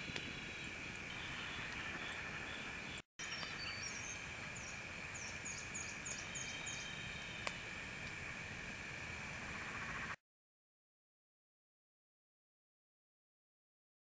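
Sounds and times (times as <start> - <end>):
insects buzzing: 0.0 - 10.2.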